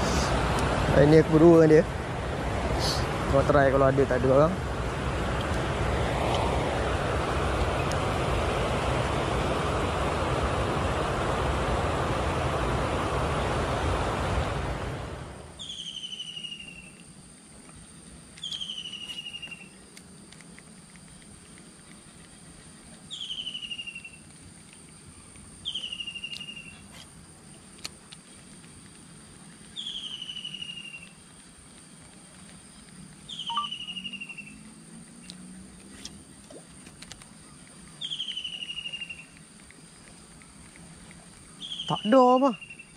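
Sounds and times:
faint high whine: 21.3 - 42.9.

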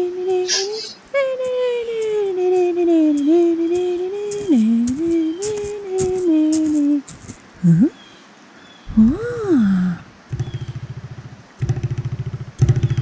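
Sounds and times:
child humming: 0.0 - 8.0, 8.9 - 10.0.

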